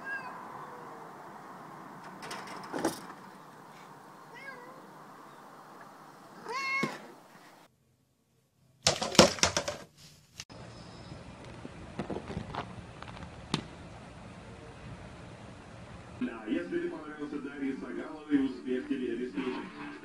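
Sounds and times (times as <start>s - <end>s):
cat meowing: 0.0s - 1.1s, 4.2s - 4.9s, 6.4s - 7.1s
loud knocks and clatter: 2.0s - 3.4s, 8.9s - 9.8s.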